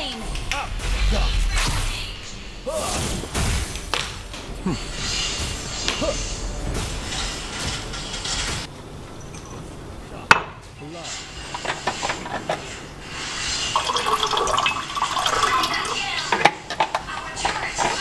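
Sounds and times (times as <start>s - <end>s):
water poured into mug: 13.7s - 16.0s.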